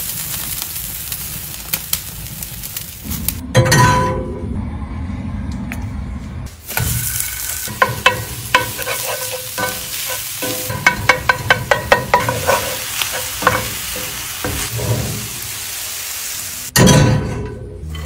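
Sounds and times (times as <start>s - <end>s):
meat sizzling in skillet: 0.0s - 3.4s, 6.6s - 16.7s
metal spatula clacking on pan: 7.7s - 14.1s.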